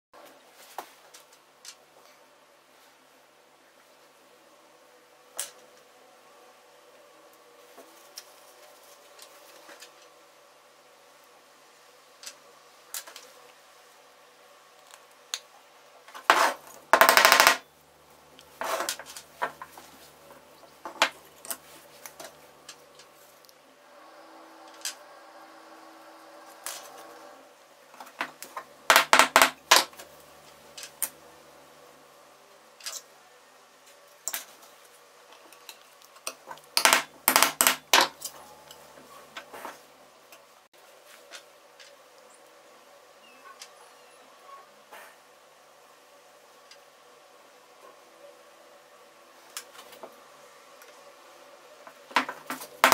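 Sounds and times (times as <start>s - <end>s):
wooden parts clicking and knocking: 16.3s - 17.6s, 28.0s - 31.1s, 35.4s - 38.4s, 51.9s - 52.9s.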